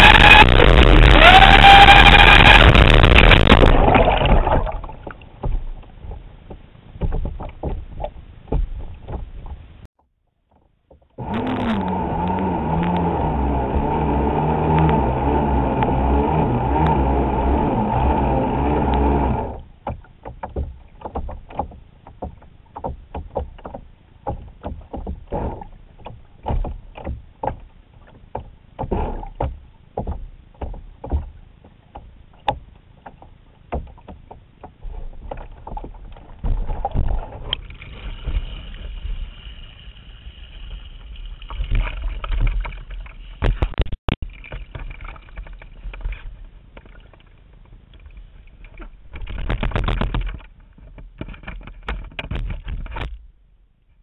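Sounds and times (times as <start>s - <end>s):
motor whine underwater: 0.0s - 5.0s, 11.2s - 19.7s
water slapping on hull: 0.0s - 53.4s.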